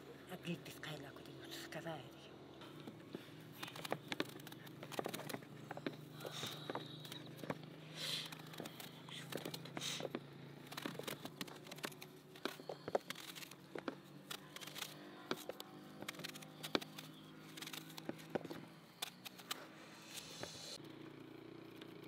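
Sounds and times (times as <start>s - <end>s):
knives scraping squash skin: 14.3s - 18.3s.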